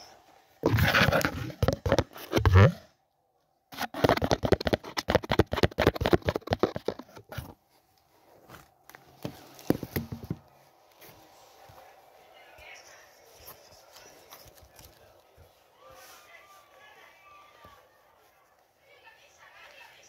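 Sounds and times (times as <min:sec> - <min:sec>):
scrapes and taps on cardboard: 0:00.6 - 0:02.7, 0:03.7 - 0:07.6, 0:09.2 - 0:10.5
cardboard box thump: 0:09.2 - 0:10.4.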